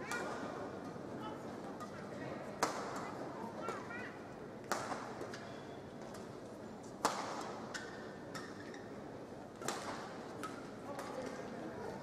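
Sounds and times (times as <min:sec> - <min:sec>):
sports hall hum: 0:00.0 - 0:12.0
racket hitting shuttlecock: 0:02.6 - 0:03.1, 0:04.7 - 0:05.3, 0:07.0 - 0:08.6, 0:09.6 - 0:11.4.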